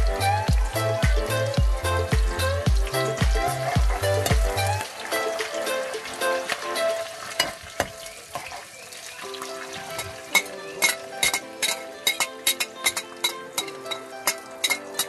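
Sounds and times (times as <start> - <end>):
background music: 0.0 - 15.0
oil sizzling in a frying pan: 0.0 - 15.0
metal ladle clinking on pan: 10.0 - 15.0.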